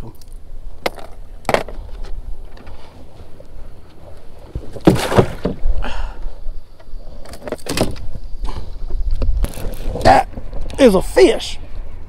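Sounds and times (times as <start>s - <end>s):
wind rumble on microphone: 5.6s - 12.0s.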